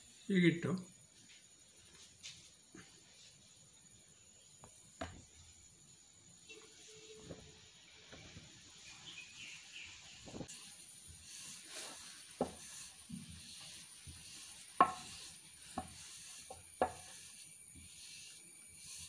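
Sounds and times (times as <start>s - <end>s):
rolling pin rubbing dough: 10.4s - 19.0s
rolling pin knocking on stone: 14.1s - 17.3s.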